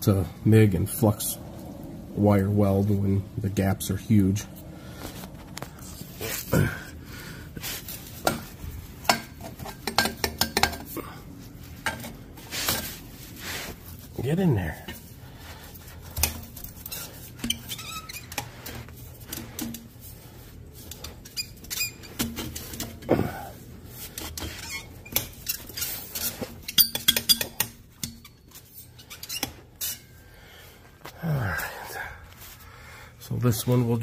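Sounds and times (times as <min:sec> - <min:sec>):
metal pipes knocking and scraping: 0:07.6 - 0:13.0, 0:14.6 - 0:30.2.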